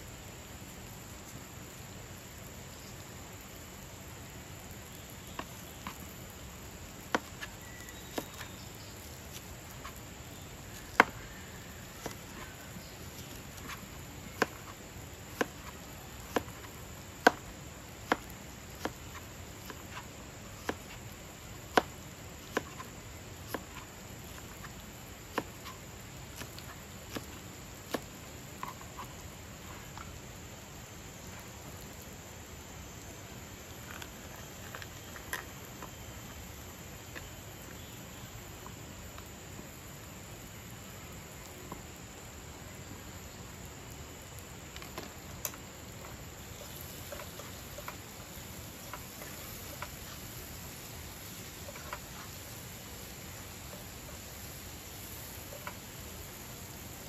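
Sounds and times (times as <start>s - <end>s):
knife slicing onion: 10.7s - 29.2s.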